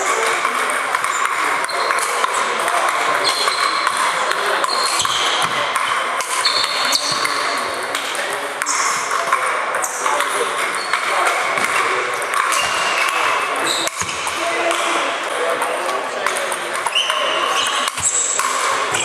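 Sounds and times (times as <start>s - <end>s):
table tennis ball clicking: 15.5s - 19.0s.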